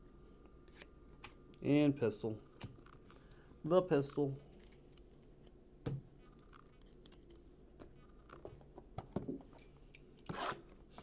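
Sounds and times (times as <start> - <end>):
cards rustling: 2.8 - 8.4.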